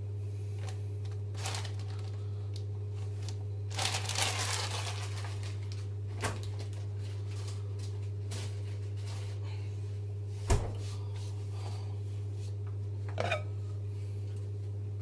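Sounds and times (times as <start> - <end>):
low electrical hum: 0.0 - 15.0
food packaging crinkling: 0.6 - 9.1.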